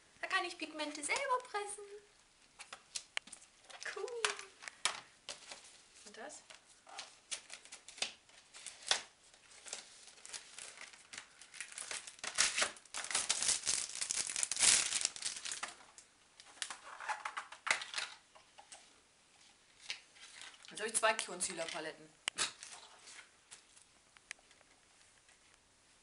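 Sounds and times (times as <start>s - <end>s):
plastic packaging crinkling: 2.5s - 18.2s, 19.8s - 21.8s.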